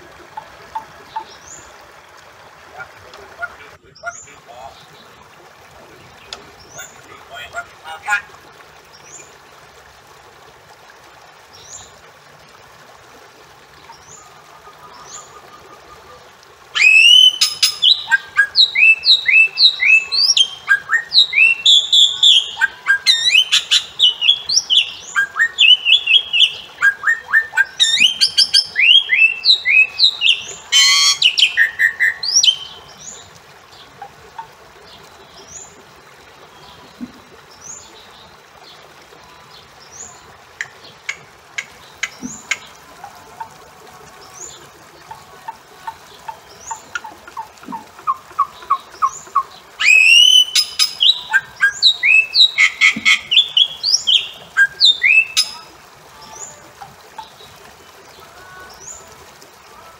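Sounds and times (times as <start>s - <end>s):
faint steady hiss: 0.0s - 59.9s
bird whistling and chirping: 16.8s - 32.7s, 49.8s - 55.7s.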